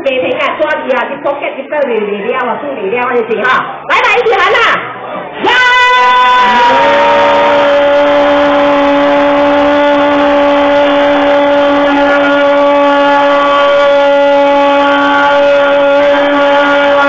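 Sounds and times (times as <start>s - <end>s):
long drawn-out cheering cry: 5.4s - 17.0s.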